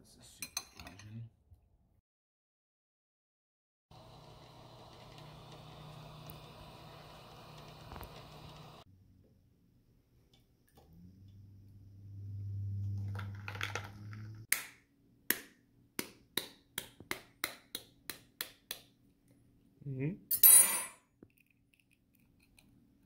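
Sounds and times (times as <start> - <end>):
low hum: 11.0 - 14.4.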